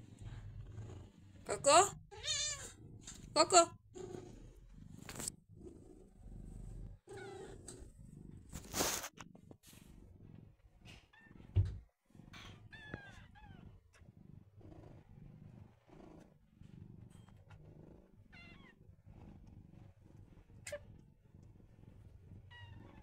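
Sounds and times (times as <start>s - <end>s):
cat purring: 0.0s - 23.0s
low thump: 11.5s - 11.8s.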